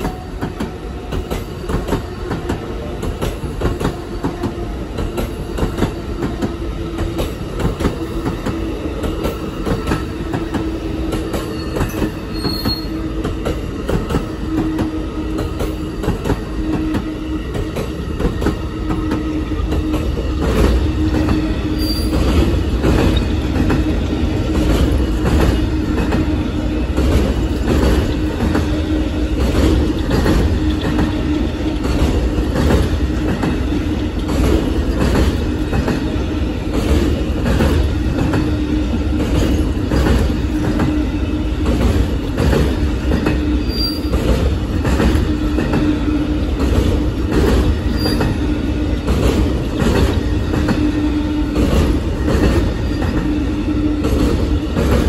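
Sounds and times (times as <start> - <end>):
train rumble: 0.0 - 55.0
train wheels clicking over rail joints: 0.0 - 55.0.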